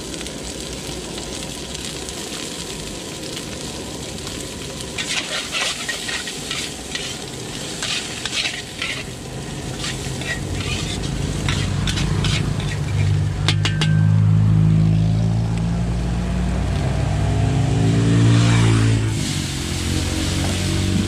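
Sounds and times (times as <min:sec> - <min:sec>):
metal spatula scraping wok: 0:05.0 - 0:14.7.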